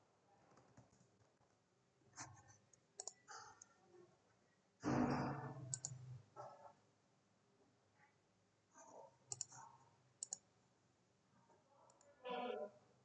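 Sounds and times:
computer keyboard keystrokes: 0:03.0 - 0:03.2, 0:05.7 - 0:06.0, 0:09.3 - 0:09.6, 0:10.2 - 0:10.4
mouse clicks: 0:03.0 - 0:03.7, 0:05.7 - 0:06.0, 0:09.3 - 0:09.6, 0:10.2 - 0:10.4.

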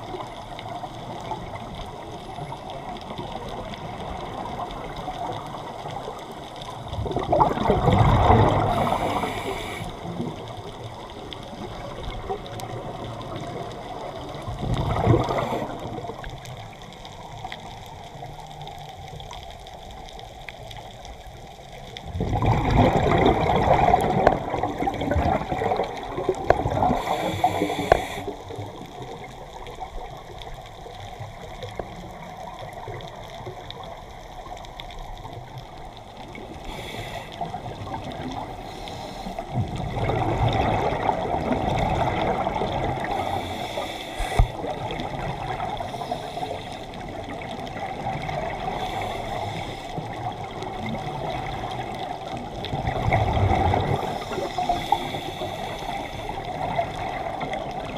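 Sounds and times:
exhaled bubbles underwater: 0:00.0 - 0:57.9
breath hissing through regulator: 0:08.6 - 0:10.0, 0:26.8 - 0:28.4, 0:36.6 - 0:37.5, 0:43.0 - 0:44.6, 0:48.7 - 0:50.0, 0:54.0 - 0:56.4.

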